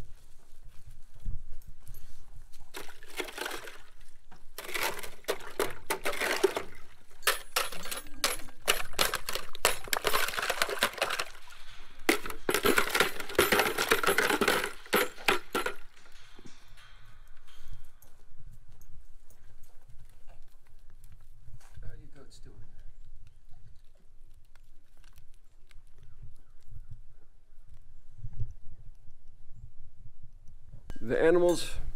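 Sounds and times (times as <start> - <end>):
ice crunching and clinking in water: 2.7 - 17.7.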